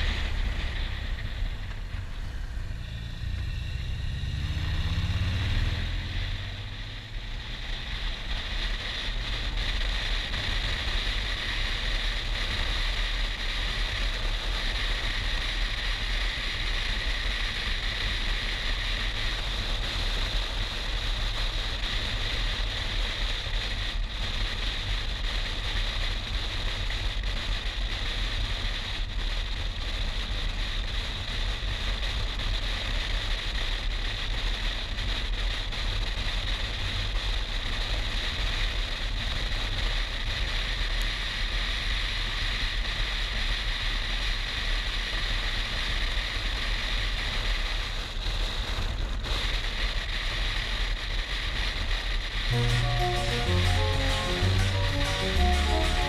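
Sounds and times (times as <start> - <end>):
motorcycle engine rumbling: 0.0 - 11.7.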